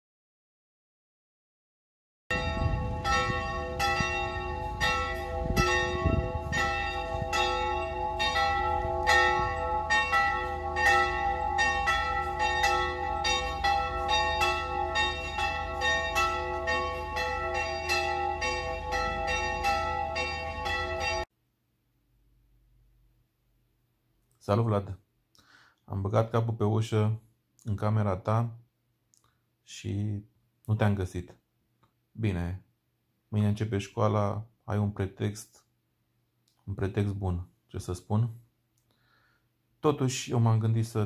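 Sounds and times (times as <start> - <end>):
church bells ringing: 2.3 - 21.3.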